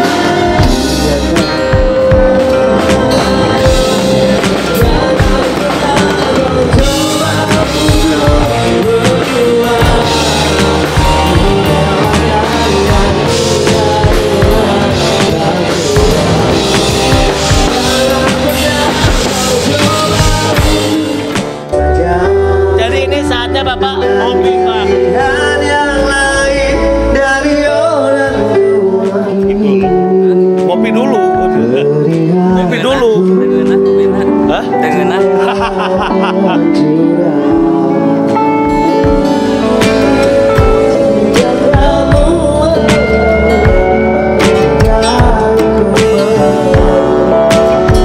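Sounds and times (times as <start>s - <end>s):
drums: 0.0s - 36.7s, 37.4s - 48.0s
bass guitar: 0.0s - 48.0s
electric guitar: 0.0s - 48.0s
keyboard: 0.0s - 48.0s
man singing: 0.0s - 48.0s.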